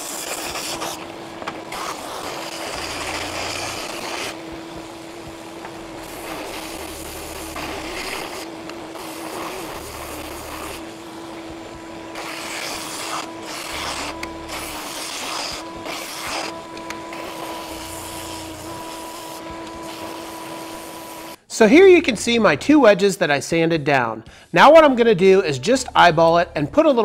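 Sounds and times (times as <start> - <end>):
belt sander motor hum: 0.0 - 21.4
sander belt rasping on wood: 0.0 - 21.4.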